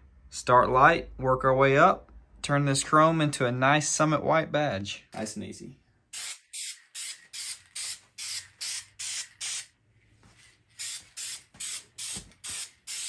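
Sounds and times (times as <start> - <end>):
spray paint can hissing: 6.2 - 9.8, 10.8 - 13.0.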